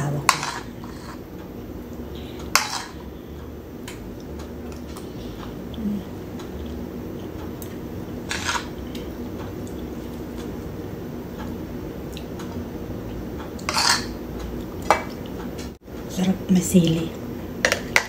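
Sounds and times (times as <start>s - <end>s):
steady low hum: 0.0s - 18.0s
cutlery scraping a plate: 0.3s - 1.2s, 2.5s - 3.0s, 8.3s - 8.8s, 13.6s - 14.2s.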